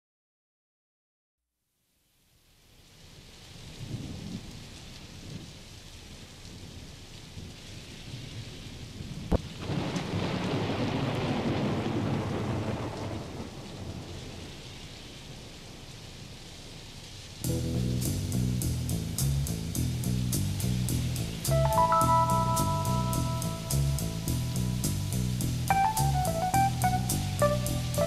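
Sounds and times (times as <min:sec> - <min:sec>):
steady rain: 0:02.0 - 0:28.0
thunder crack and rumble: 0:03.8 - 0:05.6, 0:08.0 - 0:14.8.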